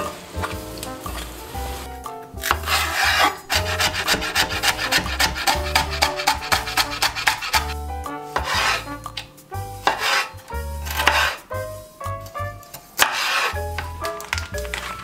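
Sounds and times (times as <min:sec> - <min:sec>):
soft background music: 0:00.0 - 0:15.0
knife chopping on wooden board: 0:02.4 - 0:07.8, 0:08.4 - 0:08.8, 0:09.8 - 0:11.4, 0:13.0 - 0:13.5
short scraping rasp: 0:02.6 - 0:07.8, 0:08.4 - 0:08.9, 0:09.8 - 0:10.4, 0:11.0 - 0:11.4, 0:13.0 - 0:13.6.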